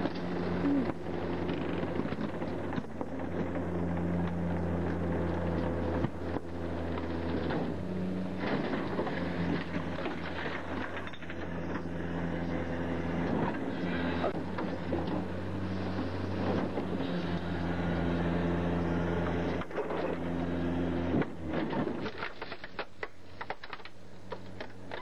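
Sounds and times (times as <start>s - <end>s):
garbage truck engine running: 0.0s - 25.0s
plastic and metal cracking: 21.2s - 25.0s.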